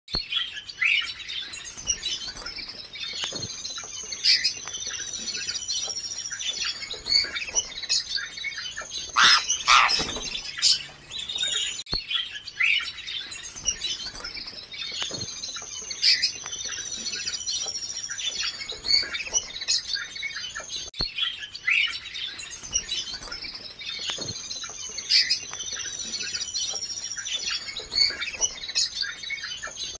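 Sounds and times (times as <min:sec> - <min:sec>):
canaries singing: 0:00.2 - 0:30.0.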